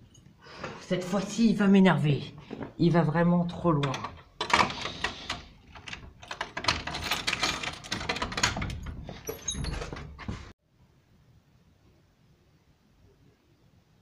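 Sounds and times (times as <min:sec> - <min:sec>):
cell door rattling: 0:03.7 - 0:10.5.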